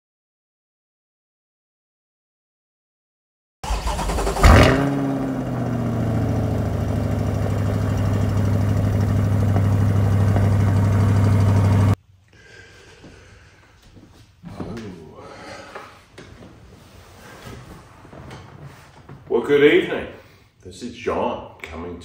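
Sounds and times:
truck engine starting and idling: 3.6s - 12.0s.

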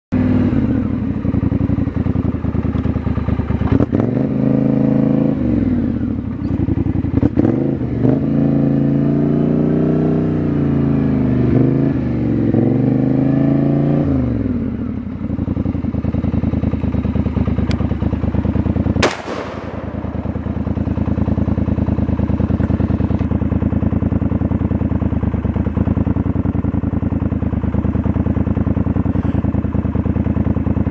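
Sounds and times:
engine running: 0.2s - 30.9s
rifle shot: 19.0s - 21.8s.

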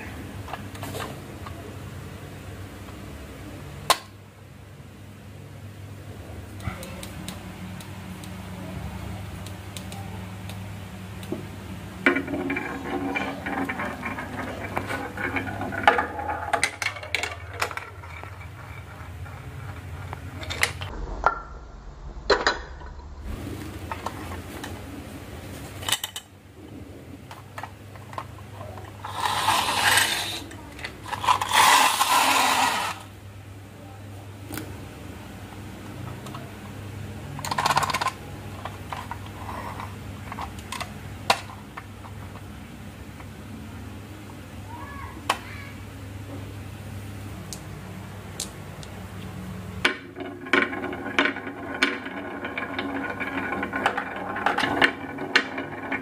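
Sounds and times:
marbles rattling down a marble run: 12.0s - 20.9s, 29.0s - 33.1s, 49.9s - 56.0s.

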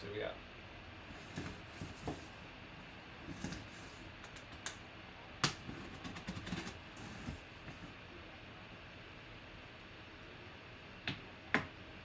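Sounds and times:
cardboard rustling: 1.1s - 2.4s, 3.2s - 4.1s.

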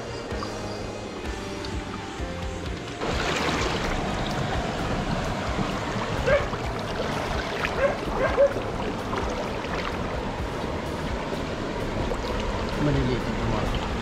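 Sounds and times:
stream water trickling: 0.0s - 14.0s
hand splashing in water: 3.0s - 4.0s.

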